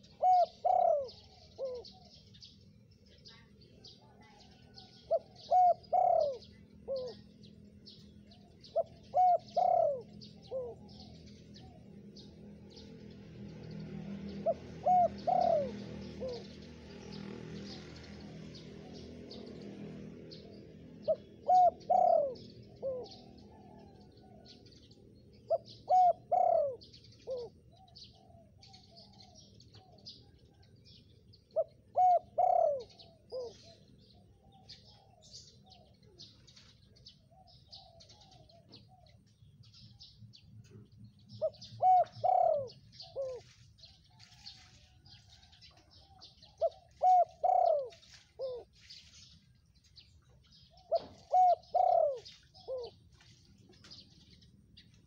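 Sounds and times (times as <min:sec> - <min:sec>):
dove cooing: 0:00.0 - 0:02.4, 0:03.4 - 0:12.9, 0:13.7 - 0:49.0, 0:50.0 - 0:53.1
small birds chirping: 0:00.0 - 0:55.0.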